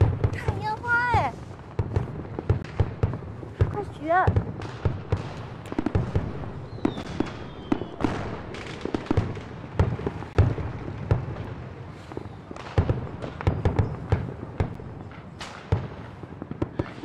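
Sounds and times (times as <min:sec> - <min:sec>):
fireworks bangs and crackling: 0:00.0 - 0:17.0
firework whistle: 0:06.6 - 0:08.2.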